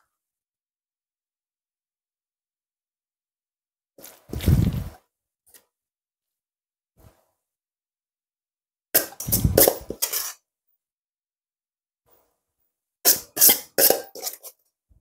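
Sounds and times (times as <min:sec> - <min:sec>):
spoon stirring coleslaw: 0:13.1 - 0:14.6.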